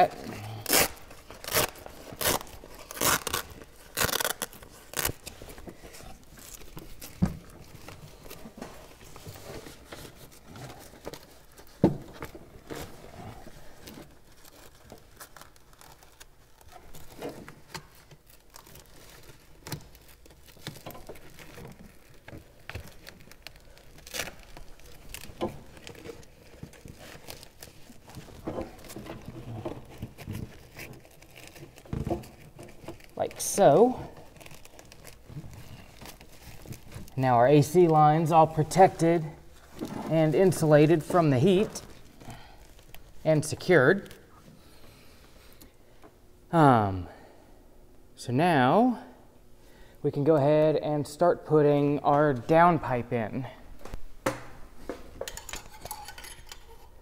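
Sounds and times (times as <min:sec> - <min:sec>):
velcro ripping: 0:00.4 - 0:08.5, 0:12.6 - 0:37.3
foil sleeve crinkling: 0:00.4 - 0:44.9.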